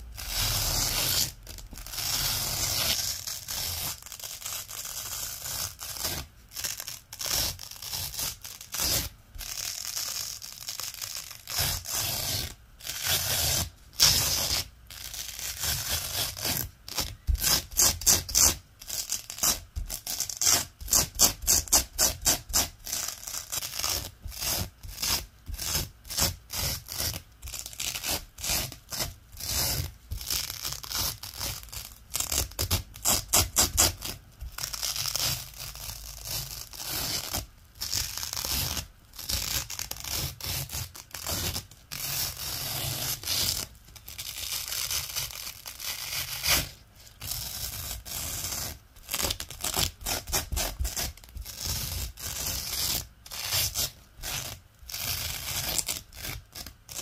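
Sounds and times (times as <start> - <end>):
velcro crackling rasp: 0.0 - 57.0.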